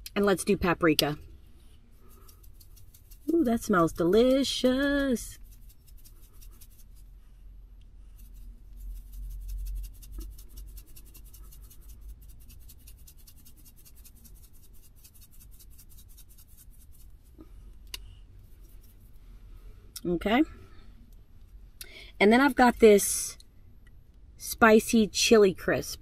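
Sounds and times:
spice jar shaking ticks: 0:02.1 - 0:07.0, 0:09.0 - 0:17.0.

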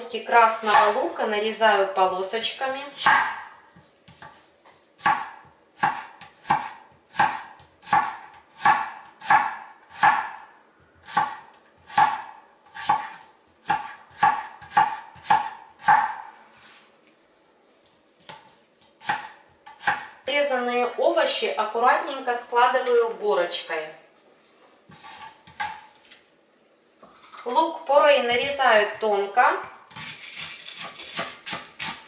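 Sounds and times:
knife chopping on cutting board: 0:05.0 - 0:10.4, 0:11.0 - 0:16.3, 0:19.0 - 0:20.2, 0:30.8 - 0:32.0.

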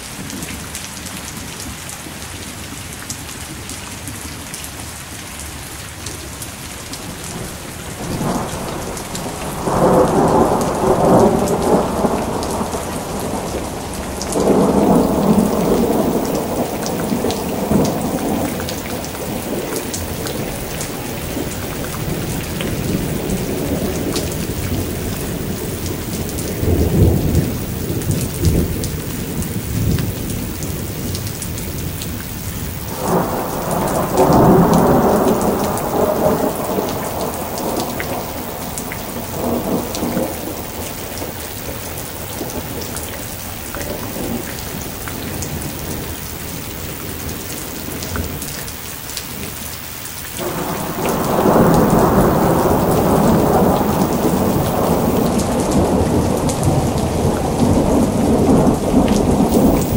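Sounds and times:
steady rain: 0:00.0 - 0:59.9
thunder rolling: 0:08.0 - 0:31.1, 0:32.8 - 0:42.9, 0:50.4 - 0:59.9.

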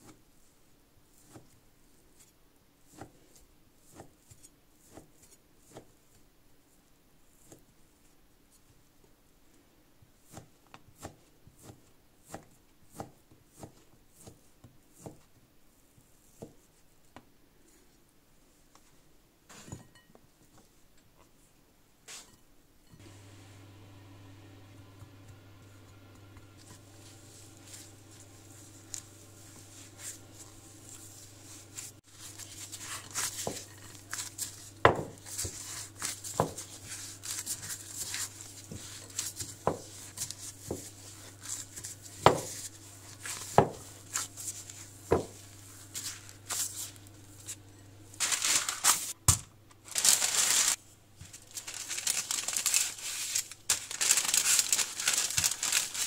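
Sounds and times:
low steady hum: 0:22.7 - 0:52.8
rolling pin rolling over paper: 0:24.1 - 0:49.1, 0:50.0 - 0:56.0
baking paper crinkling: 0:25.3 - 0:56.0
plastic glove rustling: 0:25.7 - 0:56.0.

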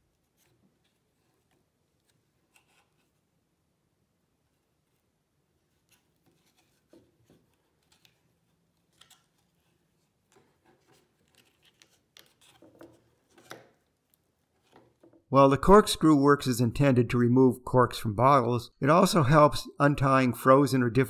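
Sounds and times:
fingers rustling thread and cardboard: 0:00.0 - 0:03.4, 0:04.3 - 0:15.3.

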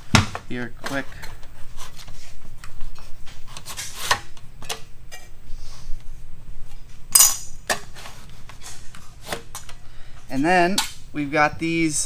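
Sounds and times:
sharp metallic clack: 0:07.2 - 0:07.6.

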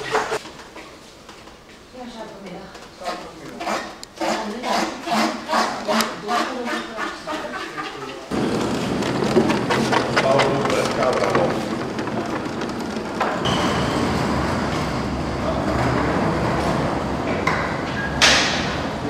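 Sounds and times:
caster wheels rolling on tiled floor: 0:06.4 - 0:17.2
roll containers knocking: 0:06.9 - 0:13.5.

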